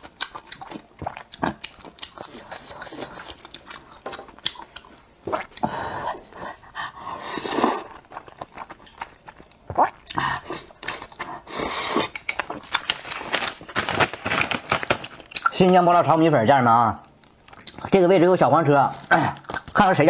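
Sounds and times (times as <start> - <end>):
slurping noodles: 7.2 - 8.2.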